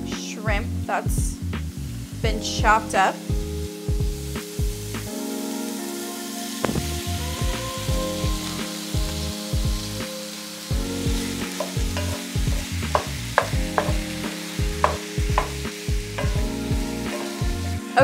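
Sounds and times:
food sizzling in frying pan: 0.0 - 18.0
utensil scraping against pan: 11.6 - 14.0, 16.2 - 16.4, 17.0 - 17.5.

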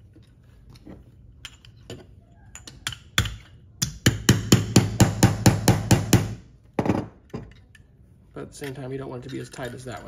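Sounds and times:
hammer striking nail: 3.2 - 6.4.

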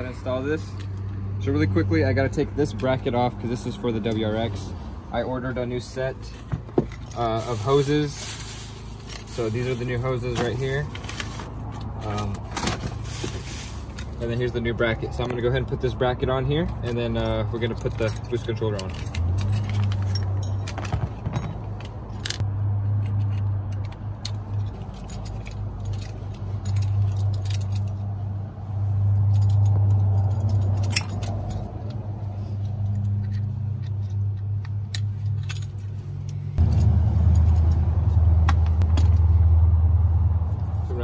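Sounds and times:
small metal parts clinking: 6.3 - 15.5, 16.5 - 22.4, 23.2 - 28.1, 29.1 - 32.0, 32.6 - 38.2
steady low rumble: 34.0 - 41.0.

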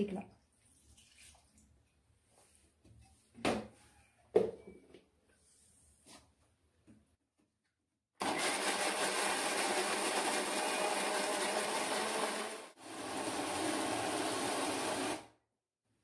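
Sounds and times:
mixer grinder running: 8.2 - 15.4.

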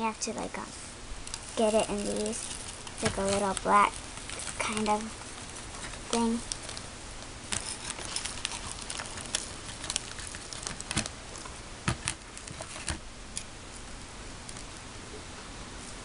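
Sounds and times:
foil sachet crinkling: 1.2 - 13.0.

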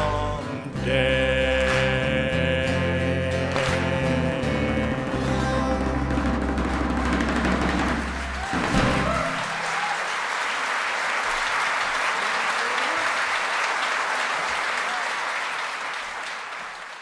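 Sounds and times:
band and choir final chord: 0.0 - 7.5
audience applauding: 5.8 - 17.0.

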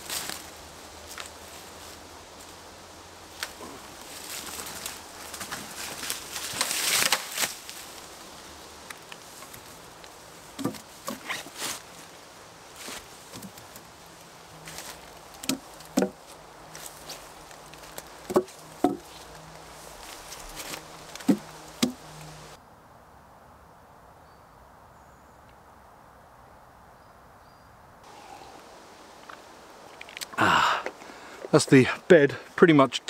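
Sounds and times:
rustling undergrowth and leaves: 0.0 - 23.2, 28.0 - 32.8
wooden poles knocking: 10.5 - 11.6, 15.3 - 16.3, 17.8 - 19.2, 20.6 - 22.1.

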